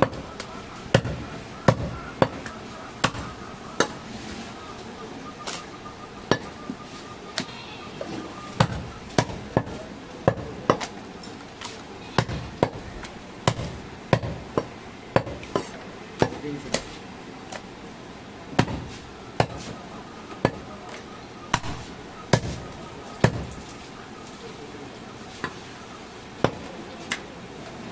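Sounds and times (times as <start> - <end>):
knife chopping meat and bone: 0.0 - 4.0, 8.6 - 11.0, 20.4 - 23.6.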